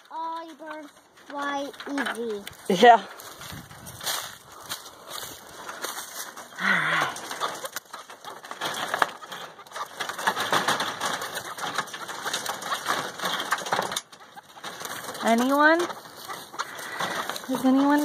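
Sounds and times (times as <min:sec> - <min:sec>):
birds clicking and scratching: 0:00.0 - 0:18.0.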